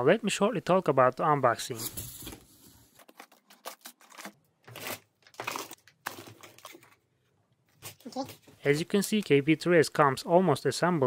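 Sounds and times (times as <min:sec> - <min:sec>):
plastic packaging crinkling: 0:03.0 - 0:07.0.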